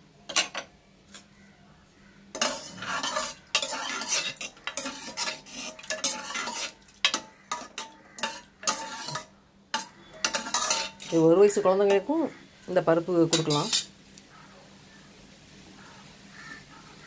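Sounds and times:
wooden ladle stirring in pot: 0:02.4 - 0:11.6.

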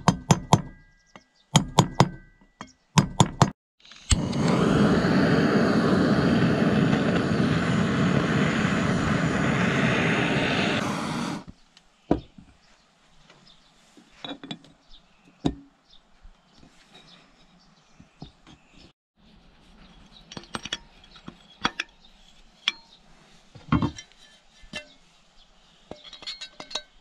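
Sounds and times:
gas torch hissing: 0:03.9 - 0:11.5
metal parts clinking: 0:25.9 - 0:27.0.

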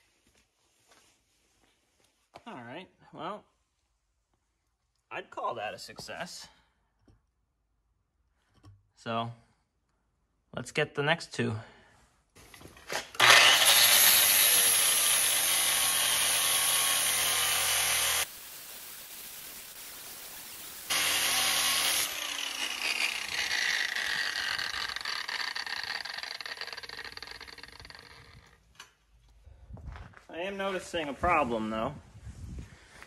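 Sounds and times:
angle grinder grinding metal: 0:12.9 - 0:28.6
grinder motor winding down: 0:13.2 - 0:18.3, 0:20.9 - 0:28.6.

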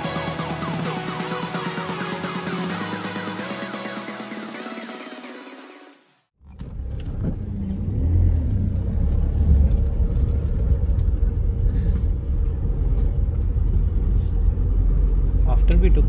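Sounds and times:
engine and tyres rumbling: 0:06.4 - 0:16.0.

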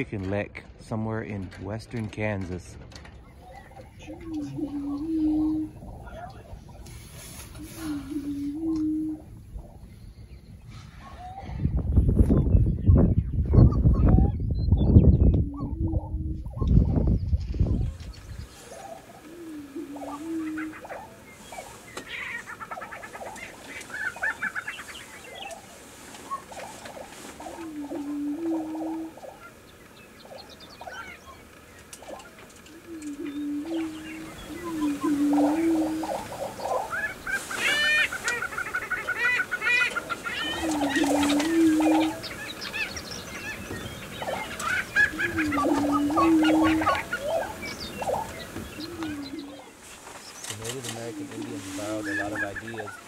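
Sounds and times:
low rumble: 0:00.0 - 0:20.8
bird clucking calls: 0:02.0 - 0:53.0
rapid chattering cackles: 0:19.0 - 0:25.7, 0:30.3 - 0:48.3
bird low wavering display note: 0:32.2 - 0:36.9, 0:40.4 - 0:42.9.

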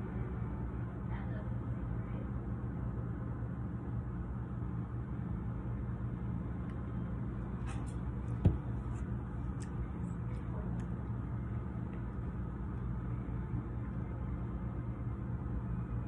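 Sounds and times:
low room hum: 0:00.0 - 0:16.0
sharp dull knock: 0:08.4 - 0:08.8.

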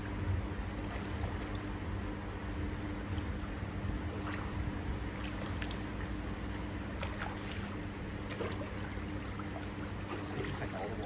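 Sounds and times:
pond water splashing: 0:00.0 - 0:02.0, 0:02.8 - 0:11.0
steady low hum: 0:00.0 - 0:11.0.

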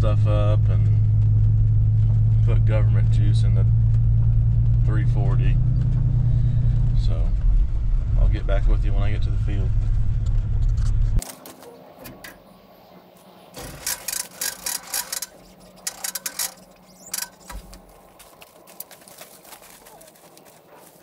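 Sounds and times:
footsteps crunching over stubble: 0:13.0 - 0:21.0
metallic clinks of hose nozzle: 0:13.6 - 0:17.6
hose dragging: 0:13.6 - 0:21.0.

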